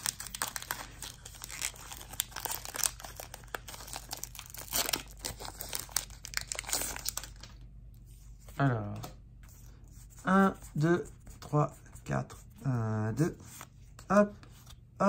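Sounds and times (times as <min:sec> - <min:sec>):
foil wrapper crinkling and ripping: 0:00.0 - 0:07.6.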